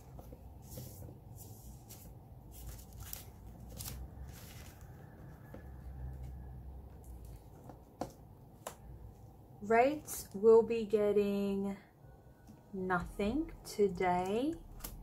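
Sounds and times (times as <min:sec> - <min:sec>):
plastic banknotes rustling: 0:00.6 - 0:05.0.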